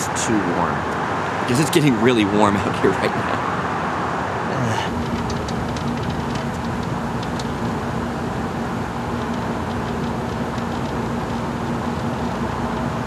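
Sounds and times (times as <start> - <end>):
mechanical drone: 0.0 - 13.0.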